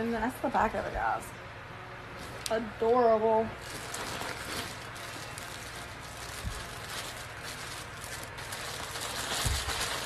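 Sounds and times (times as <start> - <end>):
plastic bag rustling and crinkling: 3.4 - 10.0.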